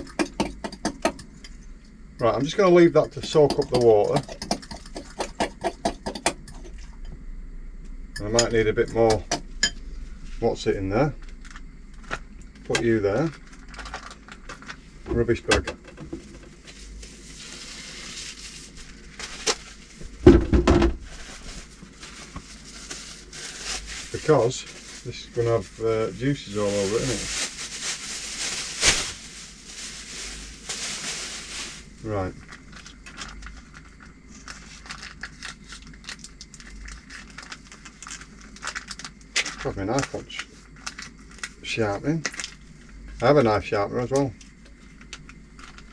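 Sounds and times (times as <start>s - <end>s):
plastic bag rustling: 11.3s - 15.0s, 16.2s - 43.0s, 44.8s - 45.9s
plastic pouch crinkling: 13.2s - 14.8s, 21.1s - 41.6s, 42.2s - 42.8s, 45.0s - 45.9s.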